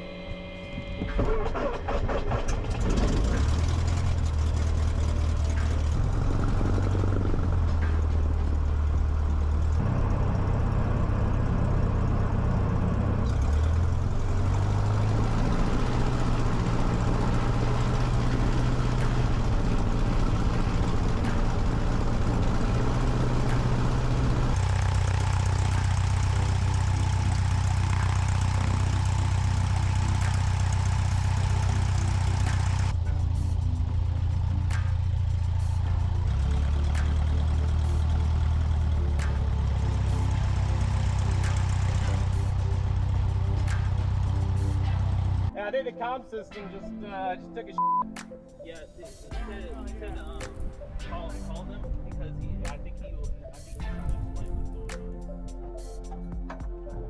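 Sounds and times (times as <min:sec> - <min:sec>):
small plane engine droning: 0:00.0 - 0:45.6.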